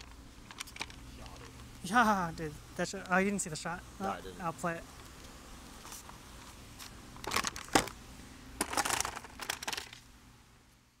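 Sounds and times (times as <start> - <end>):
rustling crinkling handling noise: 0.0 - 1.8, 5.0 - 8.0, 8.6 - 10.1.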